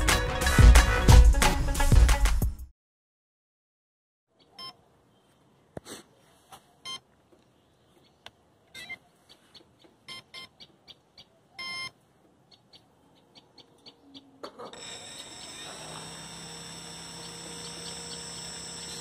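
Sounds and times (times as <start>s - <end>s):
remote transmitter beeping: 11.6s - 11.9s.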